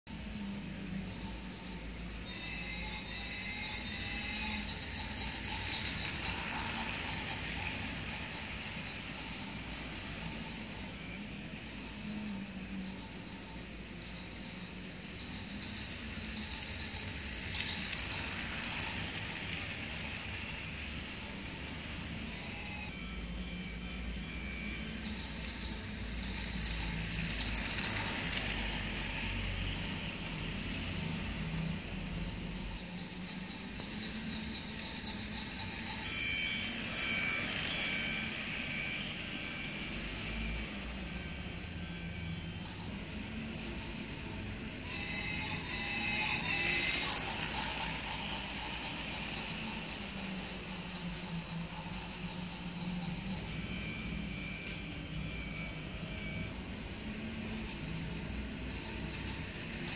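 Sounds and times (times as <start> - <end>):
toy train running on plastic track: 0.3 - 59.9.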